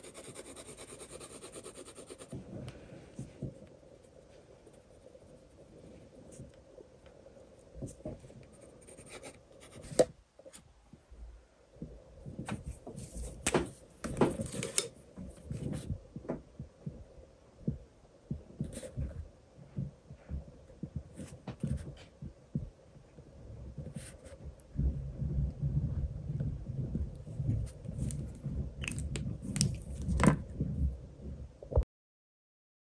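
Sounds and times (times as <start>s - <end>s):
pen scratching on paper: 0.0s - 2.4s, 8.6s - 10.1s.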